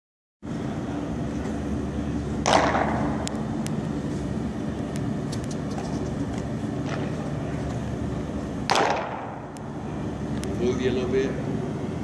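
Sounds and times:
steady low hum: 0.4 - 12.0
baseball landing smack: 2.4 - 3.4, 8.7 - 9.5.

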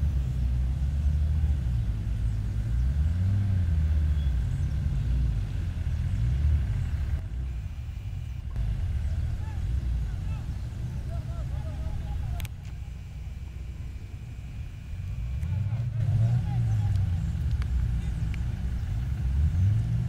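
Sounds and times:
off-road engines rumbling: 0.0 - 20.0.

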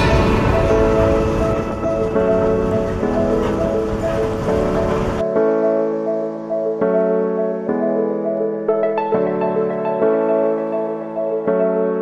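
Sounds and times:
music with sustained notes: 0.0 - 12.0.

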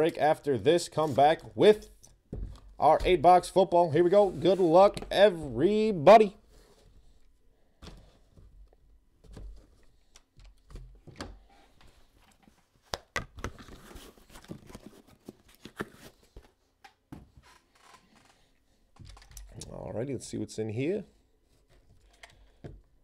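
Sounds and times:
cardboard rustling: 13.4 - 16.6.

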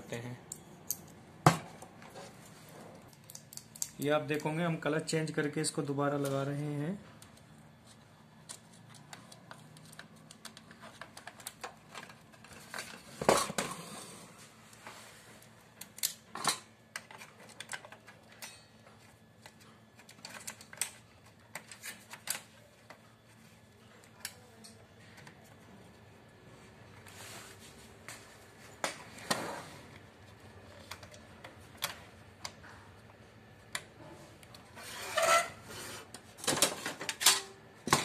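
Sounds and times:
plastic and metal parts clicking: 8.4 - 13.0, 16.8 - 18.6, 19.4 - 23.0.

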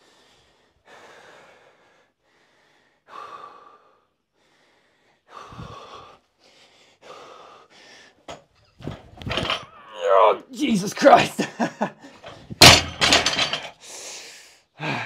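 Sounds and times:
man breathing hard: 0.0 - 8.4, 13.7 - 15.0.

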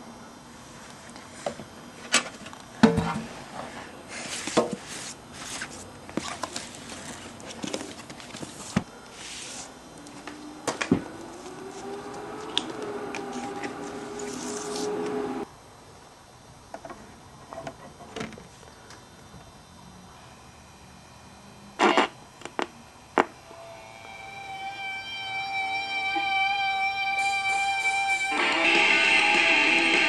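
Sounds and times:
steady low hum: 0.0 - 30.0
papery sliding swishes: 8.4 - 9.8, 13.4 - 15.2.

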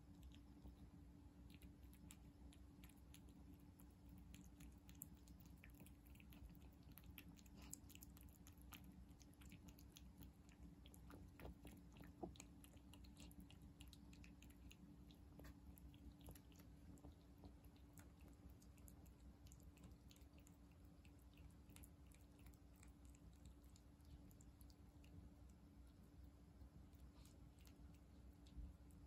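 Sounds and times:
cat chewing wet food: 0.0 - 29.0.

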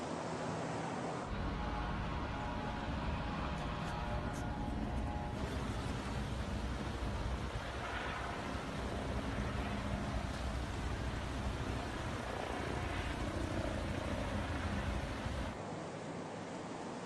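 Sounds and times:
water gushing from burst main: 4.8 - 15.6.

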